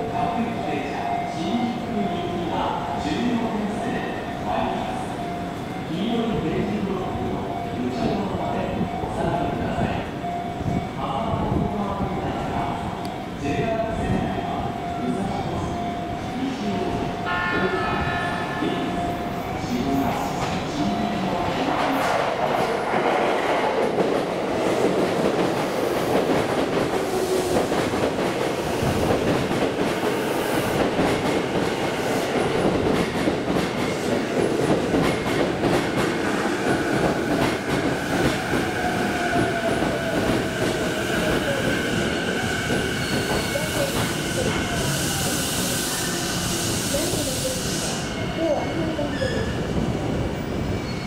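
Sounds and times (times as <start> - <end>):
electric train slowing to a stop: 14.5 - 51.0.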